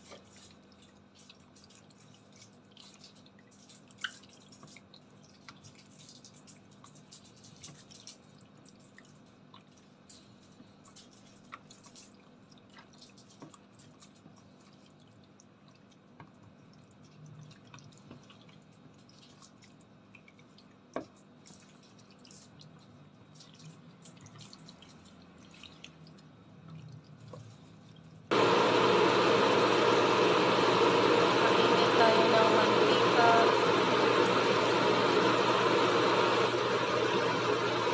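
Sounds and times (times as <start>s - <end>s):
wet squelching of mixing chicken: 0.0s - 28.3s.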